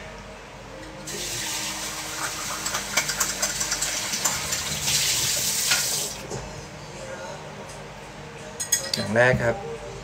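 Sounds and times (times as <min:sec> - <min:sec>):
water running from a tap: 0:01.1 - 0:06.2.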